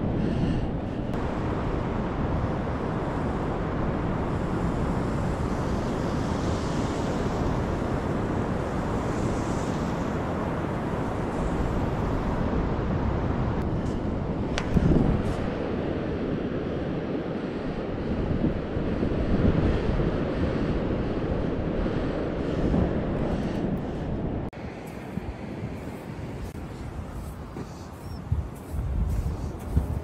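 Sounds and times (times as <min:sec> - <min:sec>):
wind buffeting microphone: 0:00.0 - 0:30.0
surf washing on beach: 0:01.2 - 0:22.9.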